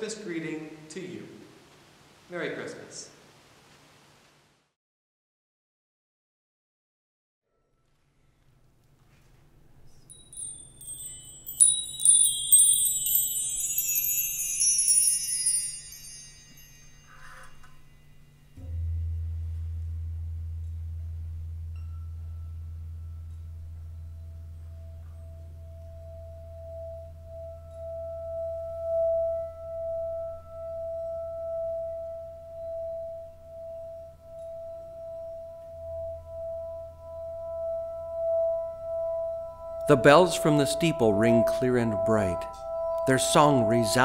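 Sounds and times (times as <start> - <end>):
high pulsing held tone: 10.0 - 19.4, 21.4 - 44.0.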